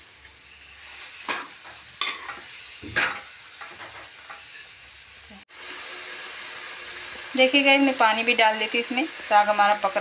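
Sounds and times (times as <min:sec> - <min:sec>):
greens sizzling in oil: 0:00.0 - 0:10.0
metal ladle stirring in pan: 0:00.8 - 0:04.6
ladle striking pan: 0:01.3 - 0:04.4.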